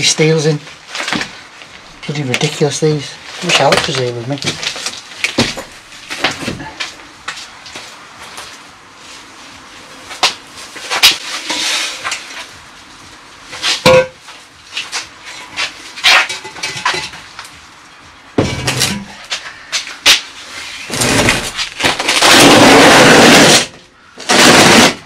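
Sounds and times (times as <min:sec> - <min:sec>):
steel scraping: 0:10.9 - 0:12.5.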